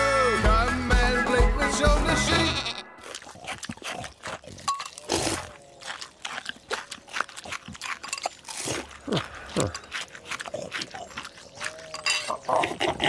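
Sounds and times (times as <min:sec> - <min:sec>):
music: 0:00.0 - 0:03.0
wet chewing and slurping: 0:02.9 - 0:13.0.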